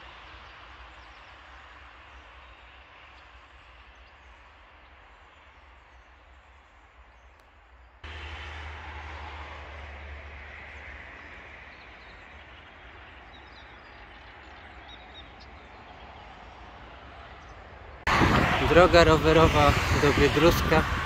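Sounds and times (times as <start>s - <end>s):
steady noisy rumble: 17.8s - 21.0s.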